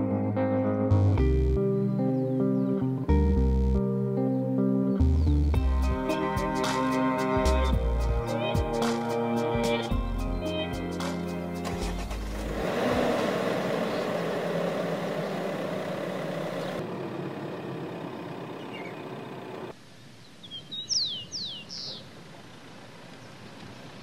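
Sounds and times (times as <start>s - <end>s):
pickup truck engine driving: 11.4s - 19.8s.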